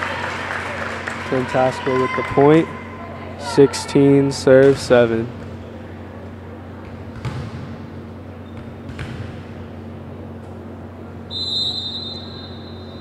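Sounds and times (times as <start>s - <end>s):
steady low hum: 0.0s - 13.0s
ball bouncing on wooden floor: 6.9s - 7.7s, 8.5s - 9.4s.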